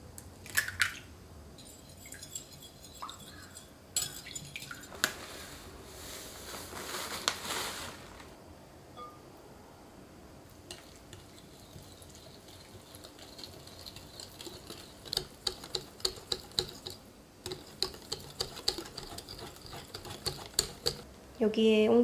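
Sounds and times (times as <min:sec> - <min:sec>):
whisk beating batter in glass bowl: 0:01.6 - 0:04.9, 0:10.8 - 0:21.0.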